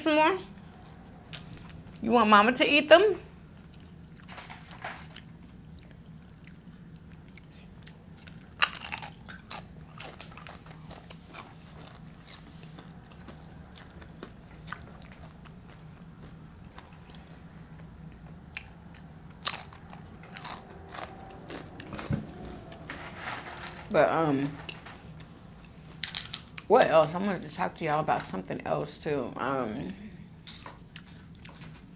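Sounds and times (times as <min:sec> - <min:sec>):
faint low hum: 0:00.0 - 0:31.9
tortilla chips crunching: 0:03.7 - 0:17.2, 0:18.5 - 0:21.7, 0:26.0 - 0:26.8, 0:30.4 - 0:31.9.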